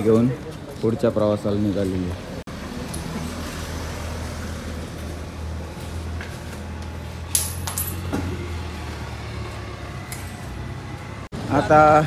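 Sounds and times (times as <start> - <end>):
metallic clink: 7.3 - 8.1.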